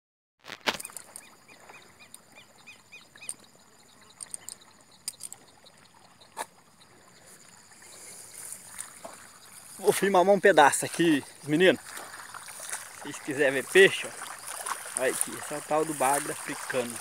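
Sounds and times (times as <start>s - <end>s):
insect drone: 0.6s - 17.0s
footsteps on damp grass: 8.0s - 17.0s.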